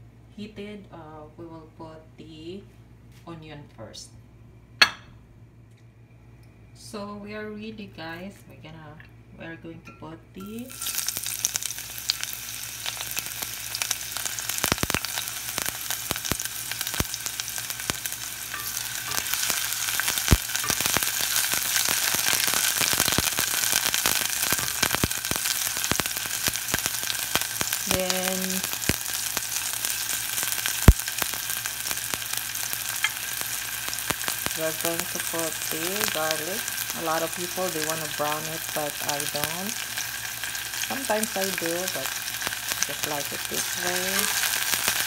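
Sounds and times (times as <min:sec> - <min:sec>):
onion sizzling in hot oil: 0:10.6 - 0:45.0.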